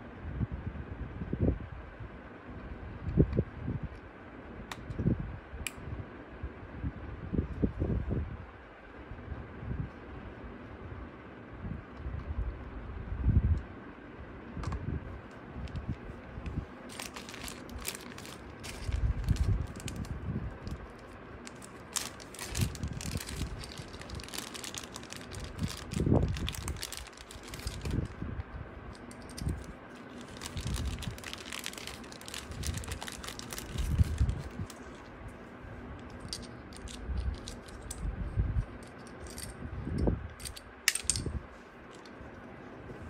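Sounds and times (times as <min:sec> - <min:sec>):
plastic bag handled: 0:16.8 - 0:28.2, 0:29.0 - 0:35.2
plastic clips clicking and rattling: 0:21.5 - 0:28.1.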